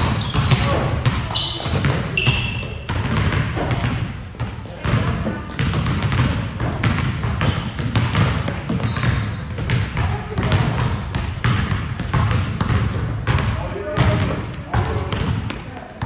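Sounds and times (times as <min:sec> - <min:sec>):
basketballs bouncing on gym floor: 0:00.0 - 0:16.0
high squeak: 0:00.2 - 0:02.7.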